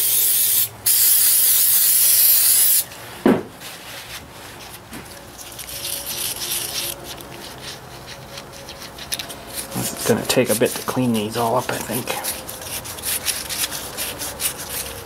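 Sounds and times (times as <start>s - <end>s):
cleaning spray hissing: 0.0s - 2.9s
knock: 3.2s - 3.5s
rubbing and scrubbing: 3.6s - 15.0s.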